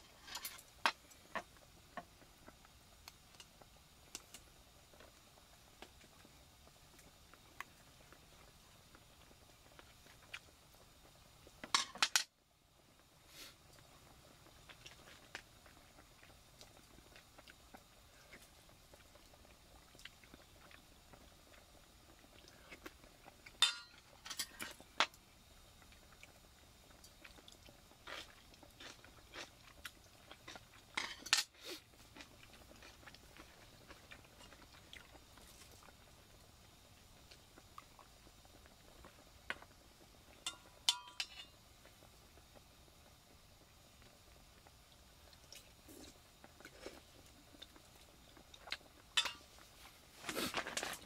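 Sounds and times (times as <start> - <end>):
metal utensils clinking on bowls: 23.6 - 24.5, 31.0 - 31.5, 40.5 - 41.5, 49.2 - 49.5
faint chewing: 25.8 - 31.0, 31.6 - 36.3, 44.6 - 51.0.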